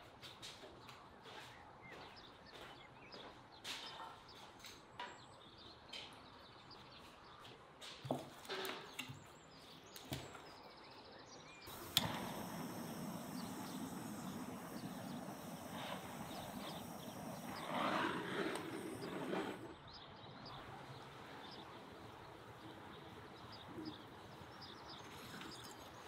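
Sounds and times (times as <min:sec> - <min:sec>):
outdoor background hiss: 0:07.2 - 0:26.0
bird chirps: 0:08.9 - 0:26.0
scratchy rustle of kindling: 0:11.7 - 0:19.7.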